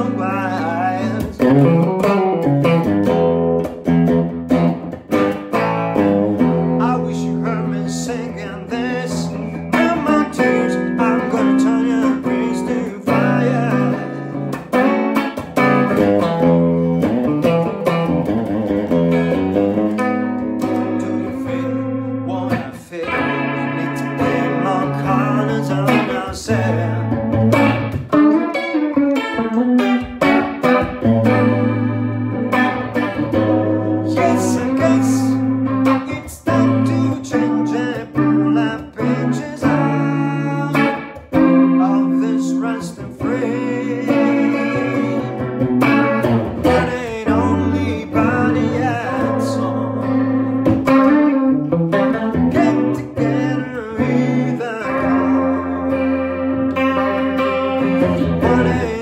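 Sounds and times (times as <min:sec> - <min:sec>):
electric guitar playing notes: 0:00.0 - 0:59.0.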